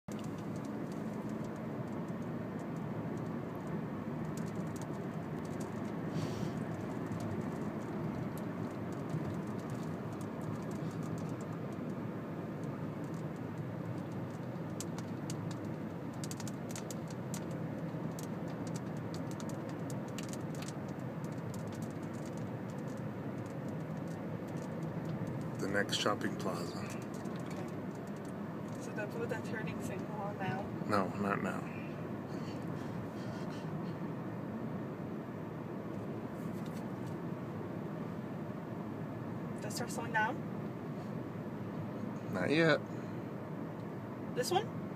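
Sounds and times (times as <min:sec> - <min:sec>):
car cabin road and engine noise: 0:00.0 - 0:44.9
light clicks and rattles: 0:00.1 - 0:30.6.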